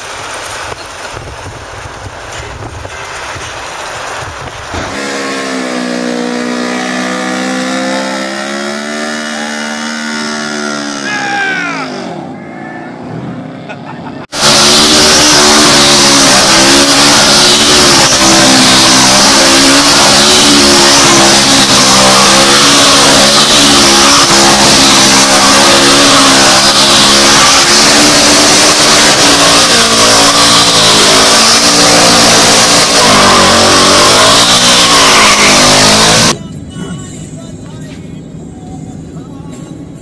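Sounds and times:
engine revving hard: 4.7s - 12.3s, 14.2s - 36.4s.

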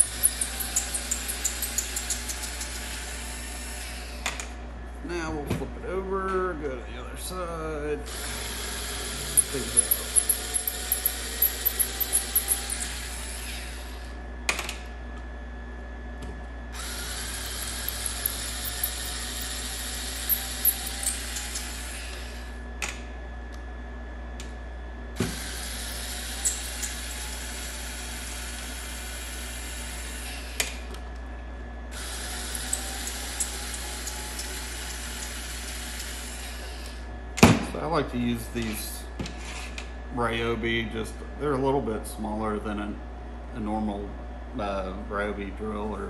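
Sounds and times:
cordless driver whirring: 0.0s - 4.5s, 8.1s - 14.0s, 16.8s - 22.5s, 25.2s - 30.9s, 31.9s - 37.0s.

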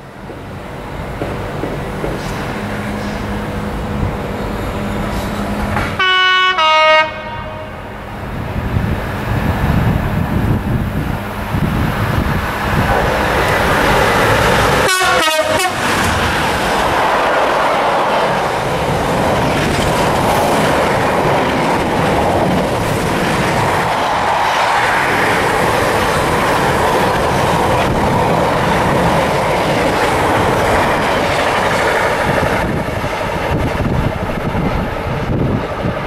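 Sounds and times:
diesel locomotive rumble: 0.0s - 36.0s
two-tone train horn: 5.9s - 7.9s, 14.8s - 15.9s.

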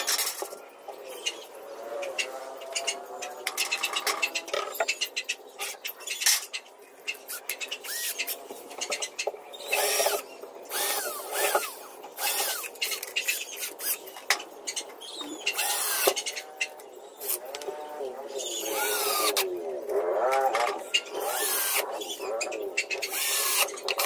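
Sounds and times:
cordless drill whining: 23.1s - 23.7s.

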